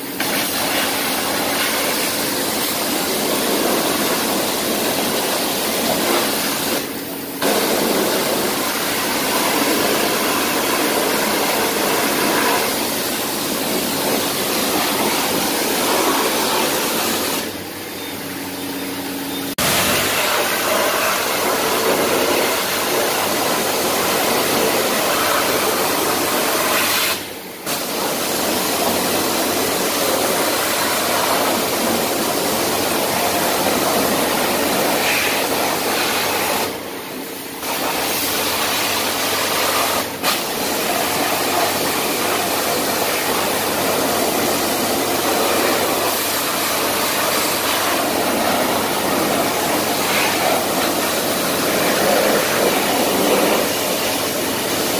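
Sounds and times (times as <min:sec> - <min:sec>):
spray wand hissing: 0:44.9 - 0:54.9.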